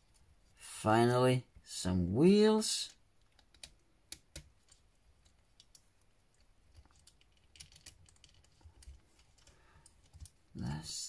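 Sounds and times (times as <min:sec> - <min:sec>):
faint plastic parts clicking: 0:02.9 - 0:10.5.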